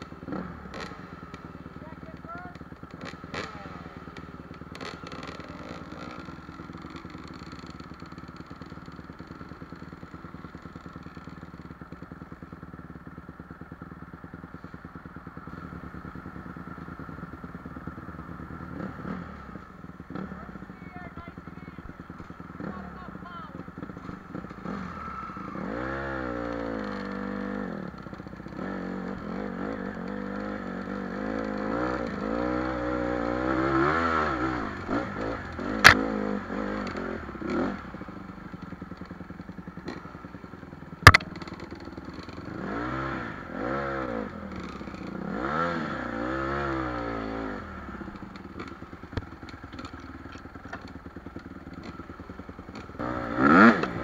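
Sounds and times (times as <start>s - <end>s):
dirt bike engine revving: 0.0s - 8.6s, 18.6s - 19.5s, 22.2s - 38.6s, 41.0s - 48.8s, 50.8s - 54.0s
sharp knocks: 41.0s - 41.3s.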